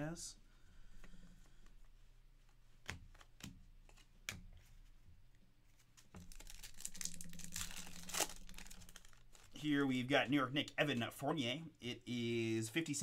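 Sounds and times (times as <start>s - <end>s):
cards and wrappers rustling: 5.7s - 10.1s.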